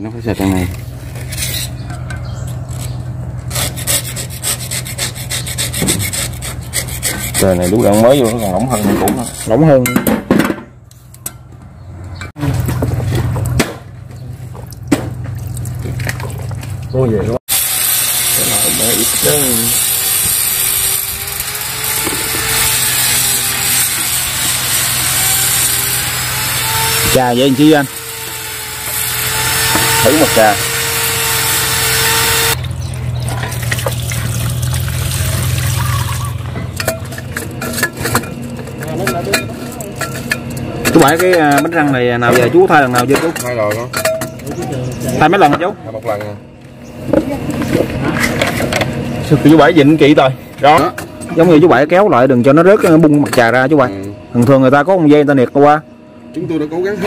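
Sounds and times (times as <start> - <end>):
machine hum: 17.5 - 42.6.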